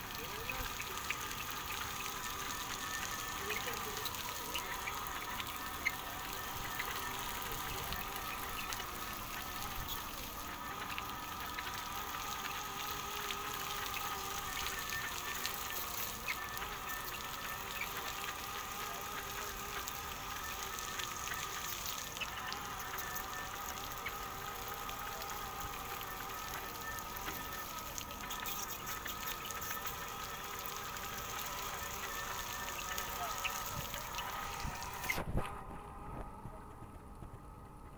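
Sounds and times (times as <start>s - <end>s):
water spraying hiss: 0.0s - 35.2s
robot motor whine: 0.0s - 37.9s.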